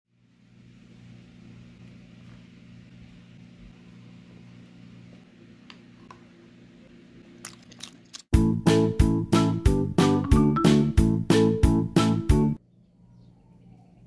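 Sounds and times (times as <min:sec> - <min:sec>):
faint low electrical hum: 0:00.1 - 0:08.3.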